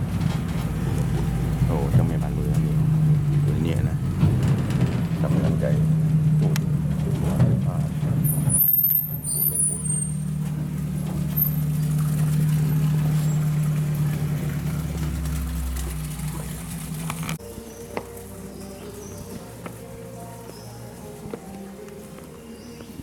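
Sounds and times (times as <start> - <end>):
vehicle engine humming: 0.0 - 23.0
brief high squeaks: 8.3 - 10.4.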